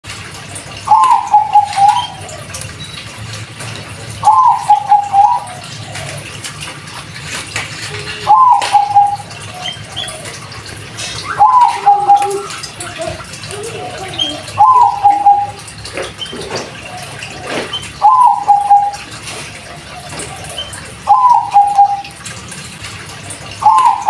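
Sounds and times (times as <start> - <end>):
dove cooing: 0.8 - 2.7, 4.2 - 6.4, 7.8 - 22.2, 23.5 - 24.0.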